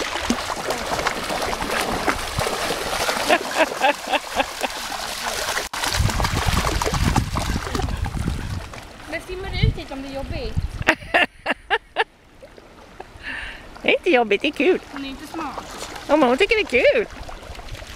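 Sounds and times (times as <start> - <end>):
dogs splashing in water: 0.0 - 9.3, 14.6 - 17.9.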